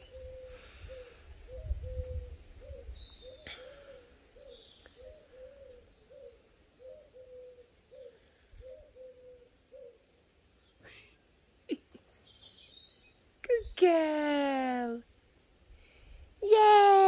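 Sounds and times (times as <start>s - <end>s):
pigeon cooing: 0.0s - 10.1s.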